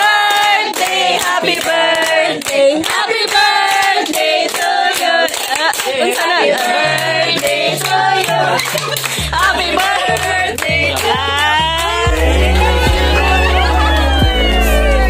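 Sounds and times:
hand clapping: 0:00.0 - 0:12.2
voices singing together: 0:00.0 - 0:15.0
low bass note: 0:11.7 - 0:15.0.

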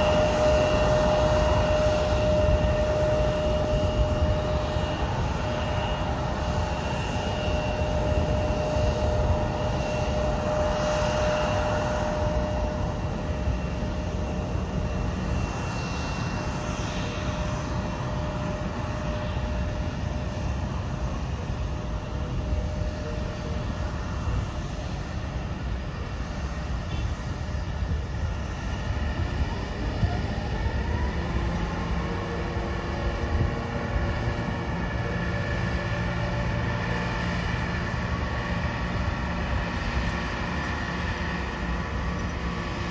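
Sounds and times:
jet engine whine: 0:00.0 - 0:42.9.

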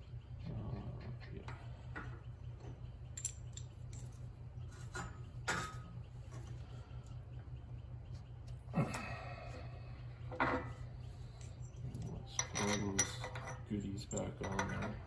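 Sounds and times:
steady low hum: 0:00.0 - 0:15.0
small metal parts clinking: 0:03.1 - 0:04.3, 0:11.3 - 0:15.0.

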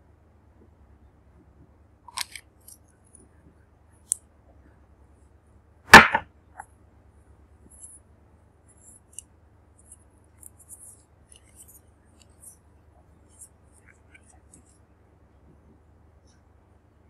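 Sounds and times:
loud short knock: 0:05.9 - 0:06.2.

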